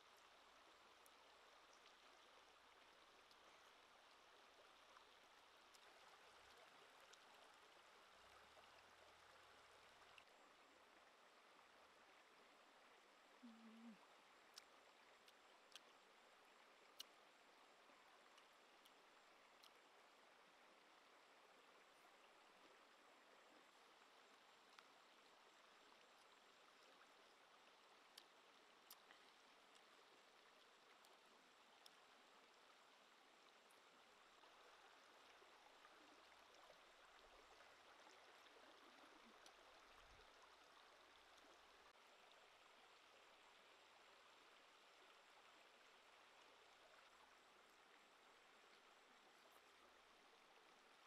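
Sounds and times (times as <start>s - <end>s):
stream flowing over rocks: 0.0s - 51.0s
faint clicks: 2.8s - 4.2s, 4.8s - 9.0s, 13.4s - 17.6s, 18.2s - 20.1s, 24.6s - 32.1s, 38.1s - 40.4s.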